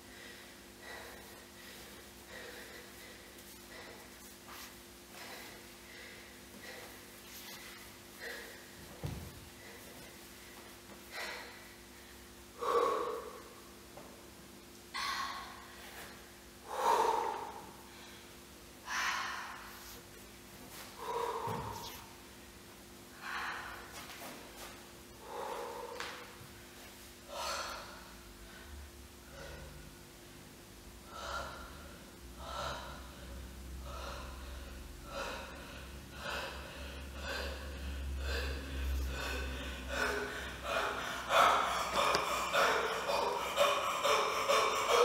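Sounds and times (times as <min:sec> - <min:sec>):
person breathing sharply: 0:00.0 - 0:13.7, 0:14.9 - 0:20.0, 0:21.0 - 0:22.1, 0:23.1 - 0:24.1, 0:31.1 - 0:45.0.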